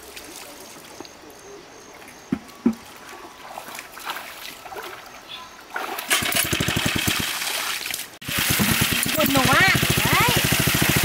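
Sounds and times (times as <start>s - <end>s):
water splashing and dribbling: 0.0s - 1.2s, 1.9s - 11.0s
water pump engine running fast: 6.1s - 7.4s, 8.2s - 11.0s.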